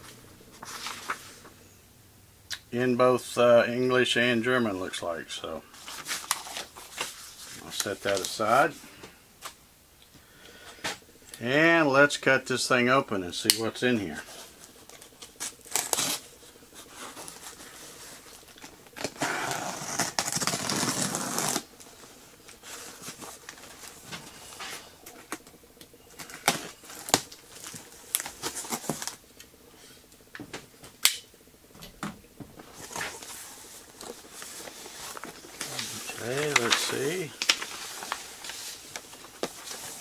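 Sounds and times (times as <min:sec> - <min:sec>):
cardboard flaps rustling: 0:32.4 - 0:40.0.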